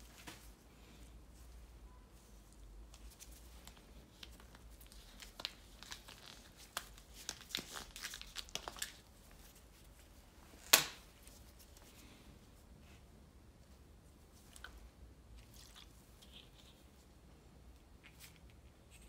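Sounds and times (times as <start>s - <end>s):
glove crinkling: 2.9s - 12.2s.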